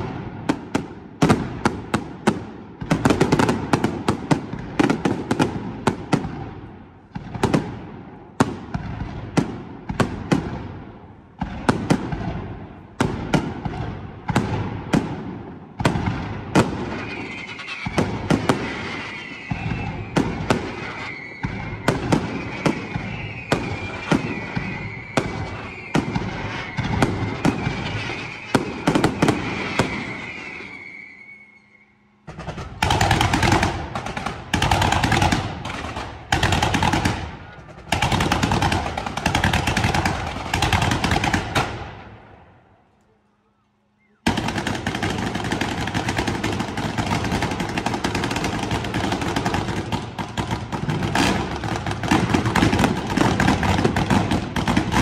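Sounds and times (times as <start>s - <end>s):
fireworks bursting with bangs: 0.0s - 42.5s, 44.1s - 55.0s
steady high whistle: 16.9s - 32.3s, 43.4s - 44.3s.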